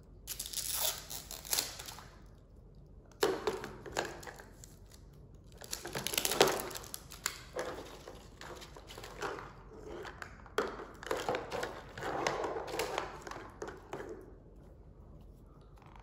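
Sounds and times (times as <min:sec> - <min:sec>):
plastic wrapping crinkling and tearing: 0:00.3 - 0:02.2, 0:04.1 - 0:09.0.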